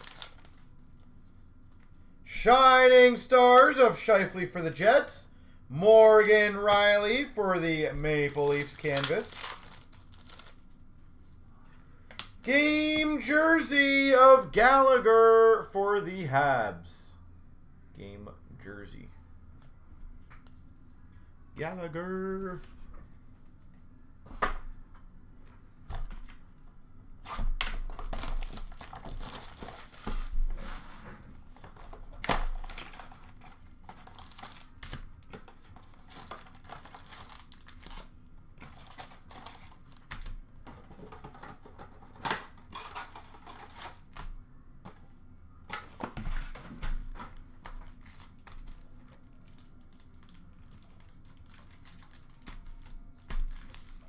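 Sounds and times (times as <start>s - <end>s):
foil wrappers ripping and crinkling: 0.0s - 0.8s, 8.2s - 10.8s, 27.9s - 30.3s, 32.6s - 38.1s, 38.7s - 40.3s, 47.8s - 54.0s.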